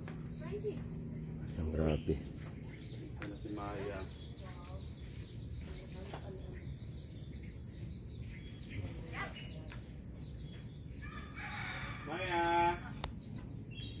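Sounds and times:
high-pitched insect chirring: 0.0s - 14.0s
rooster crowing: 11.0s - 12.8s.

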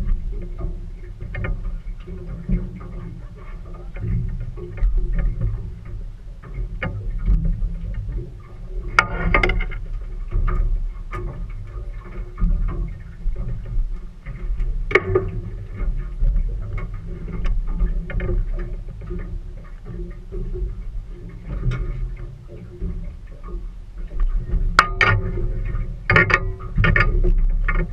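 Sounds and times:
boat low rumble: 0.0s - 27.9s
knocks against the hull: 6.6s - 20.8s, 21.4s - 27.9s.

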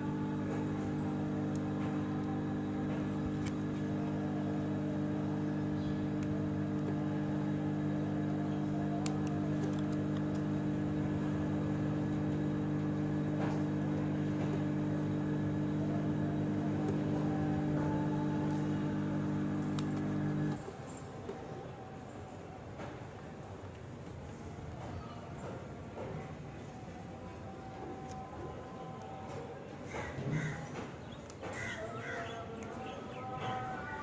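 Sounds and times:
machine hum: 0.0s - 22.1s.

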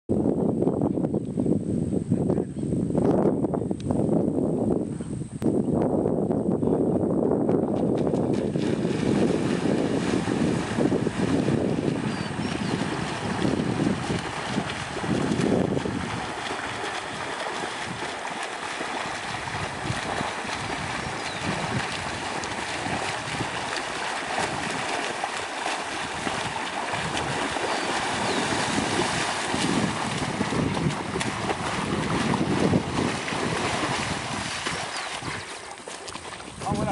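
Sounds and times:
wind buffeting microphone: 0.1s - 36.9s
wading through shallow water: 7.8s - 36.9s
swimmers splashing: 8.4s - 36.6s.

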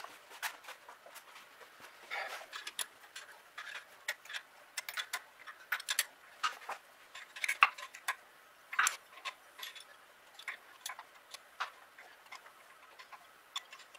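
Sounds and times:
hand tools clicking on metal: 2.4s - 6.6s.

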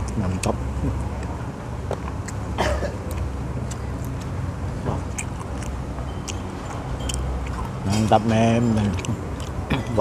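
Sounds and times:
low traffic rumble: 0.0s - 10.0s.

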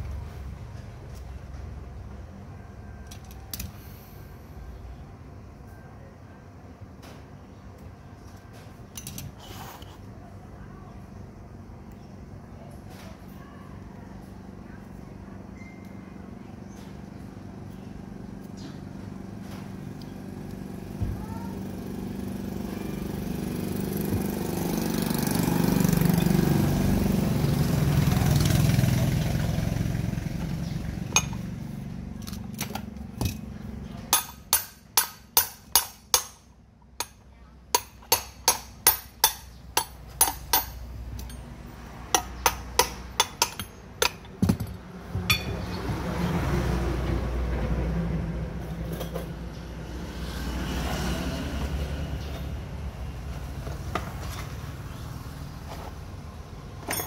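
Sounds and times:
hammer tapping metal: 34.1s - 41.5s, 42.1s - 45.7s.

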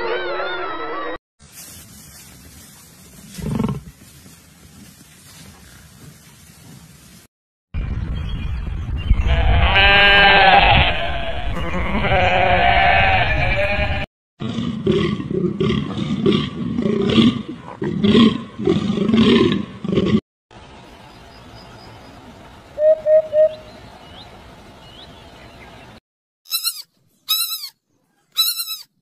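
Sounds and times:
goat bleating: 9.3s - 14.1s
deer calling: 26.5s - 27.8s.

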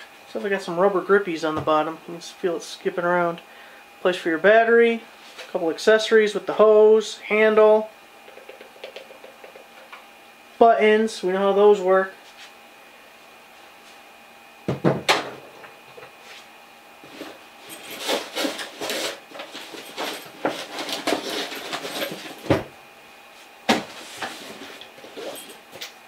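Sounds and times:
knocks on wooden bench: 14.7s - 15.3s.

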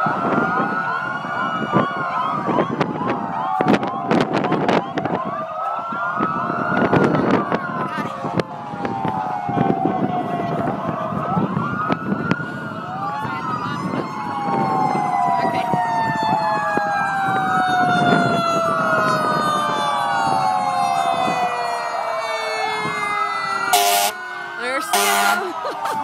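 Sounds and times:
emergency vehicle sirens: 0.0s - 26.0s.

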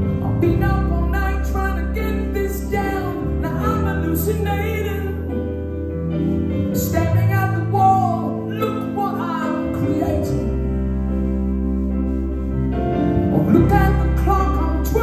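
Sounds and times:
man singing: 0.0s - 5.4s, 6.7s - 10.6s, 13.3s - 15.0s.

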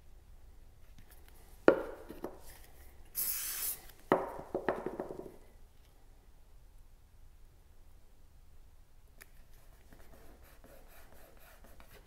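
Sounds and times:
aerosol spray hiss: 3.2s - 4.0s
cards tapped on wooden board: 4.1s - 5.3s.

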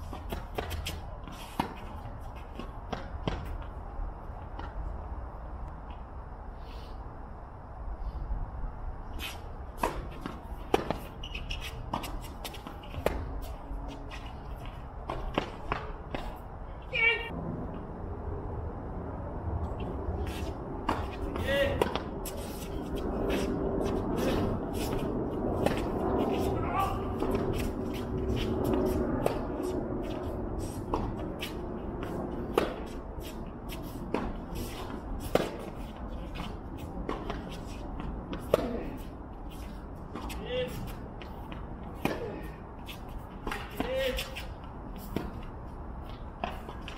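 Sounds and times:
shoes scuffing on court: 0.0s - 3.8s, 9.2s - 16.5s, 19.8s - 46.9s
tennis ball impacts on court: 9.8s - 11.1s
tennis racket hitting ball: 9.8s - 11.1s, 20.4s - 39.1s, 40.1s - 44.4s.

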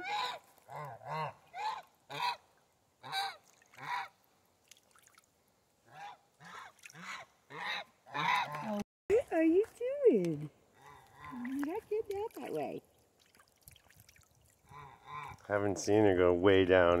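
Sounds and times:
geese honking: 0.0s - 2.4s, 5.9s - 8.8s.

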